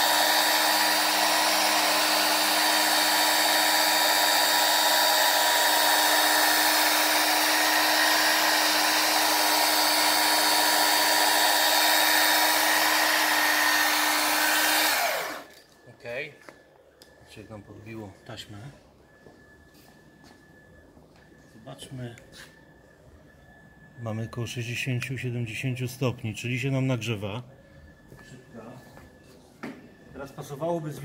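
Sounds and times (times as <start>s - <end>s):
polishing machine motor whine: 0.0s - 16.2s.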